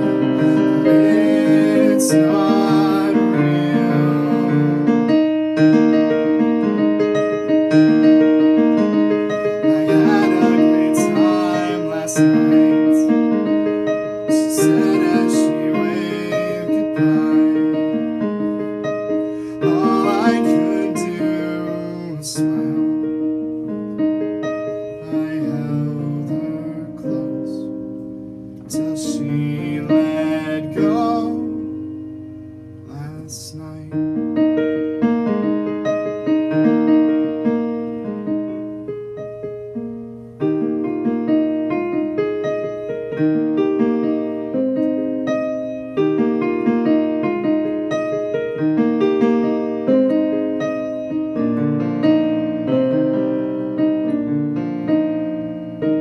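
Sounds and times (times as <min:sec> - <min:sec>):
person singing: 0:00.0 - 0:05.1, 0:09.4 - 0:13.2, 0:14.2 - 0:18.2, 0:19.4 - 0:23.0, 0:25.0 - 0:27.7, 0:28.7 - 0:31.7
piano ballad chords: 0:00.0 - 0:56.0.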